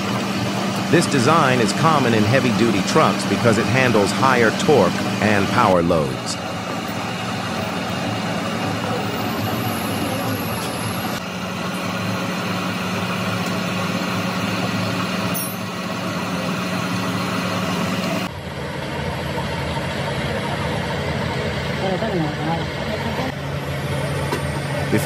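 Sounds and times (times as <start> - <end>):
metal lathe humming: 0.0 - 18.3.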